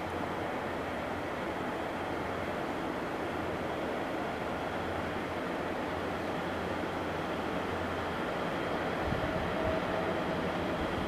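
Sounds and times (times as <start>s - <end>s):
locomotive engine rumble: 0.0s - 11.0s.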